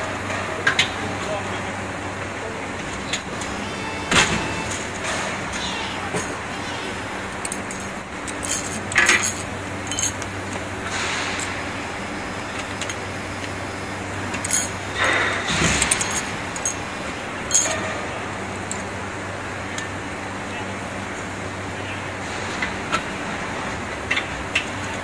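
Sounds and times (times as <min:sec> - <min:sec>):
machine humming: 0:00.0 - 0:22.4
plastic parts clinking: 0:07.4 - 0:10.7.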